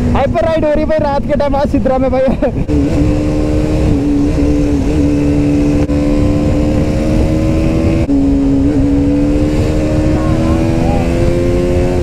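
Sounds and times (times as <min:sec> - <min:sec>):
motorcycle engine at speed: 0:00.0 - 0:12.0.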